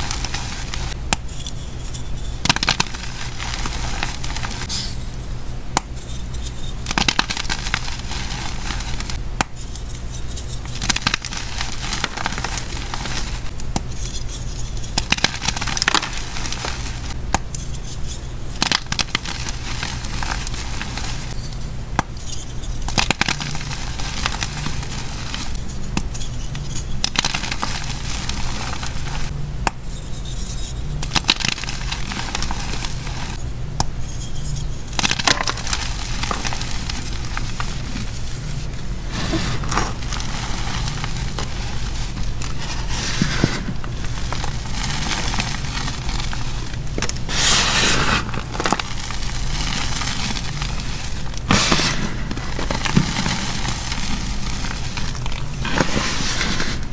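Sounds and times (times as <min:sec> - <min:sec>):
chalk crunching and crackling: 0:00.0 - 0:01.0, 0:01.8 - 0:05.0, 0:06.0 - 0:21.4, 0:22.4 - 0:29.4, 0:31.0 - 0:33.4, 0:34.9 - 0:56.9
steady low hum: 0:00.0 - 0:56.9
gritty rubbing between palms: 0:34.1 - 0:56.9.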